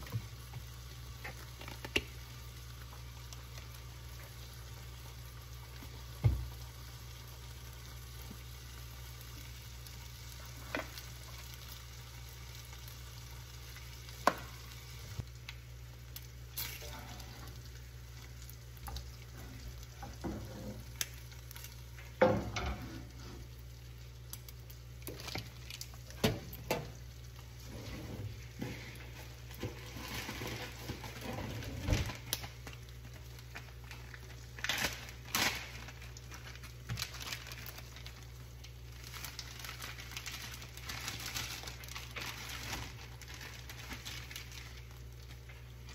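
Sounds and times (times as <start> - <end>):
bacon sizzling in a skillet: 0.0 - 45.9.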